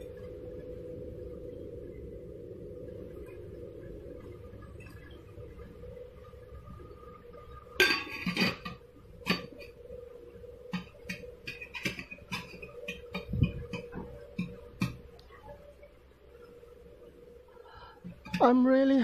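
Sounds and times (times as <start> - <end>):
metal lid rattling on pot: 7.8 - 9.6, 10.7 - 14.9.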